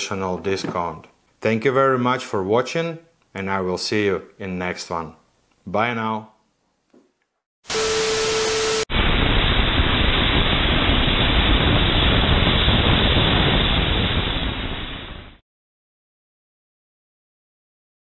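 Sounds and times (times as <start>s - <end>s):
dull rushing static noise: 7.7s - 15.4s.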